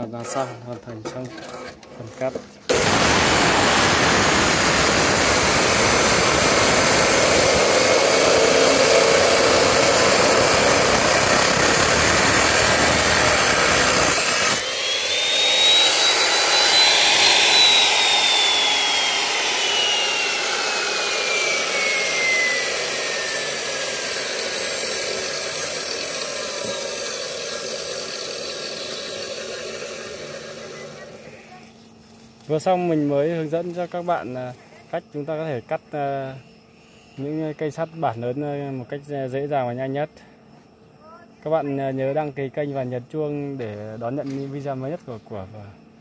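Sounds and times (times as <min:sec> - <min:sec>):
cut-off saw grinding steel: 0:02.7 - 0:31.5
saw motor whine: 0:02.7 - 0:31.7.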